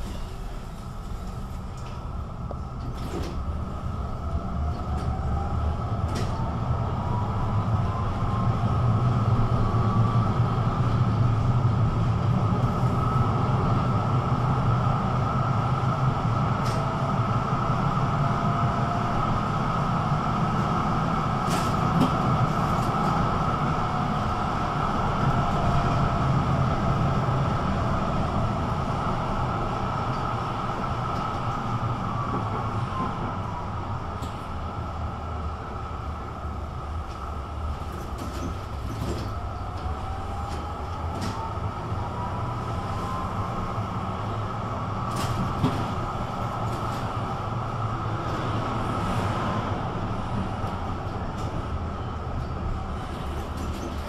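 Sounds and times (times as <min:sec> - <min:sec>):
tram motor whine: 0:00.0 - 0:54.0
tram rumble and hum: 0:00.0 - 0:54.0.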